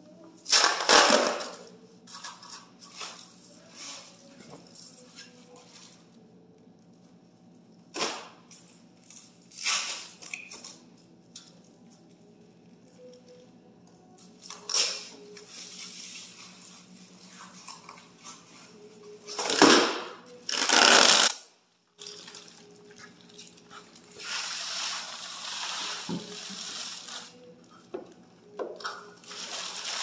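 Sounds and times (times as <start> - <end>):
plastic wrapping crinkling: 22.0 - 27.6, 28.9 - 30.0.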